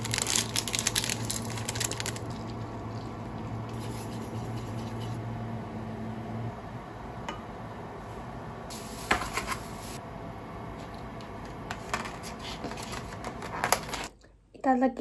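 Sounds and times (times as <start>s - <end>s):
low hum: 0.0s - 9.0s.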